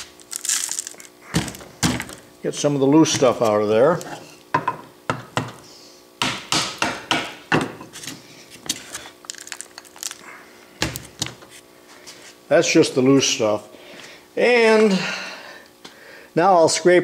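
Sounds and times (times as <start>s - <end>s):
metal chips rattling: 0.0s - 1.1s, 9.3s - 10.2s.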